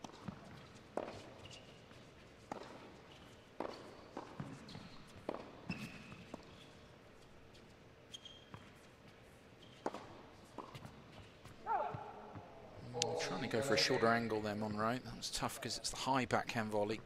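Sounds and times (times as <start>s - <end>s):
shoes squeaking on court: 0.0s - 12.6s.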